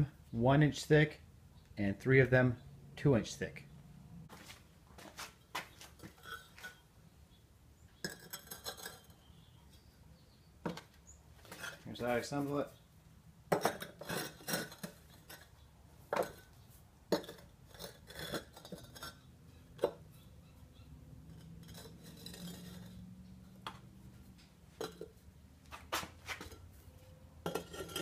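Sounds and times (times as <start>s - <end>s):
bricks clacking and scraping: 8.0s - 9.2s, 13.5s - 20.1s, 21.3s - 23.8s, 24.7s - 25.2s, 27.4s - 28.0s.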